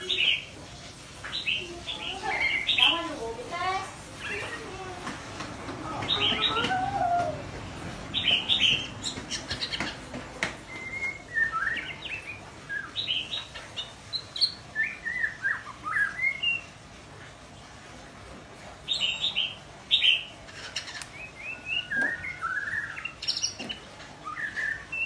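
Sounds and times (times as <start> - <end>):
bird whistling and chirping song: 10.6 - 16.8, 18.9 - 25.0.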